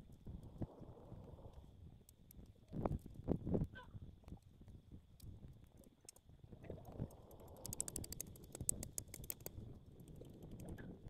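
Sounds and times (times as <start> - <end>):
wind rumble on microphone: 0.0 - 11.0
small clicks: 6.9 - 10.8.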